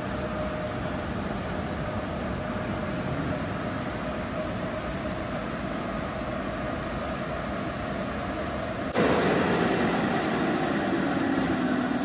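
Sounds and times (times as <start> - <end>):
dryer blowers rushing air: 0.0 - 12.0.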